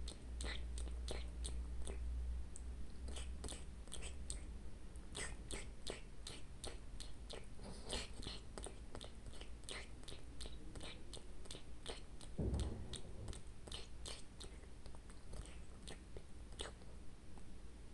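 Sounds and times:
cat licking and smacking lips: 5.2 - 16.9
low thump: 12.4 - 13.8.

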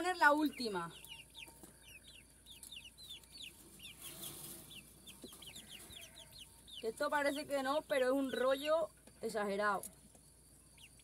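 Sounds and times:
chicks peeping: 0.0 - 11.0
soft rustle: 3.5 - 6.2.

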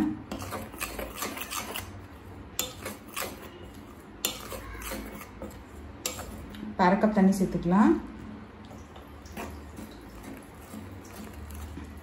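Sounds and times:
metal spoon stirring powder: 0.0 - 6.6, 9.4 - 12.0.

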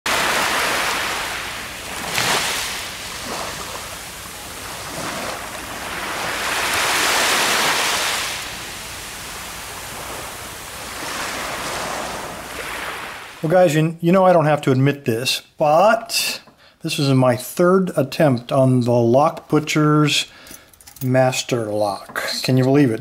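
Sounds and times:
waves washing over sand: 0.1 - 13.5.

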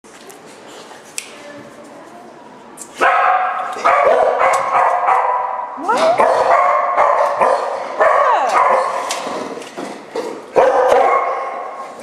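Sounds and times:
dog barking with echo: 3.0 - 9.1, 10.5 - 11.9.

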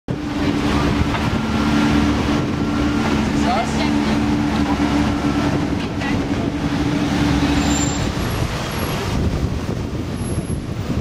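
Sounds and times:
car engine humming: 0.1 - 11.0
wind noise: 0.1 - 11.0.

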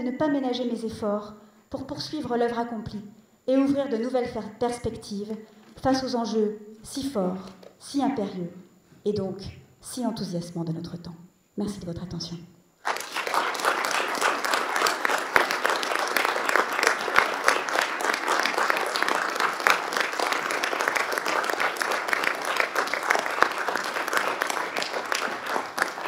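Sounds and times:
audience clapping: 12.8 - 26.0.

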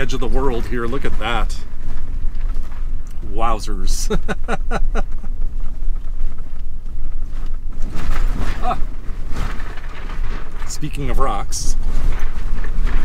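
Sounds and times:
engine and tyres rumbling: 0.0 - 13.0.

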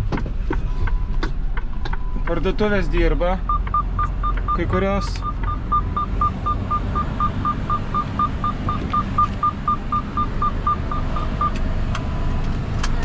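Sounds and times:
truck cab hum: 0.0 - 13.0
short electronic beeps: 3.4 - 12.2.

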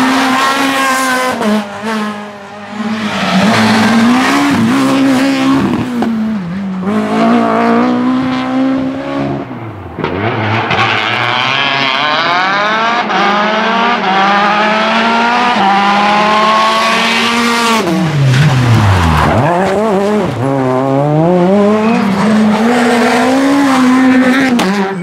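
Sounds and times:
rally car engines revving: 0.0 - 25.0.

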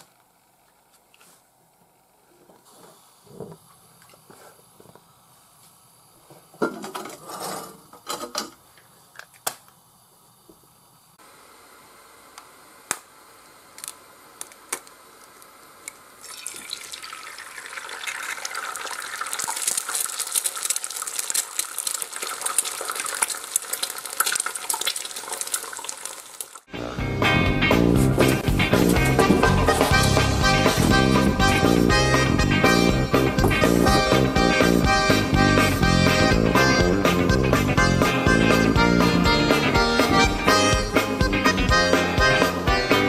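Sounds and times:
egg frying with crackling sizzle: 13.8 - 26.7.

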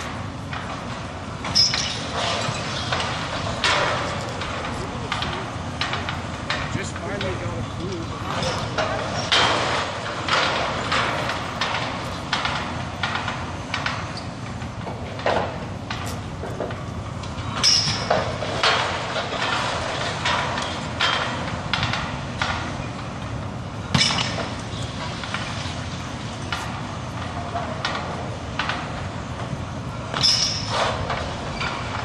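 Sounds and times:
metal clanks and knocks: 0.0 - 22.9
heavy machinery rumble: 0.0 - 32.0.

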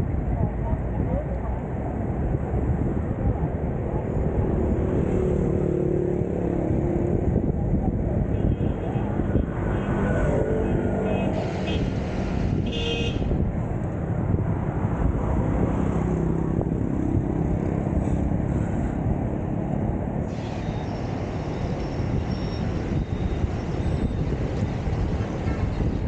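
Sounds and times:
road traffic rumble: 0.0 - 26.0.

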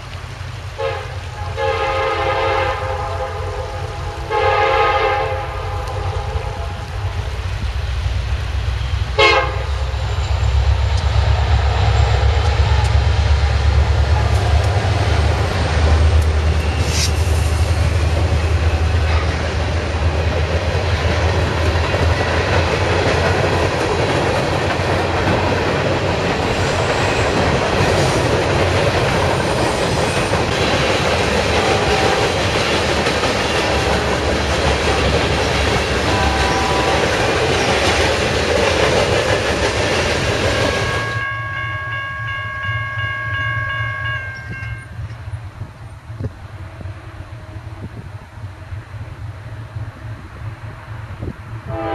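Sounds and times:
train wheels on rails: 0.0 - 51.9
distant locomotive horn: 0.7 - 7.6, 8.4 - 20.1, 31.4 - 32.6, 35.9 - 37.7, 40.5 - 45.0, 51.6 - 51.9.

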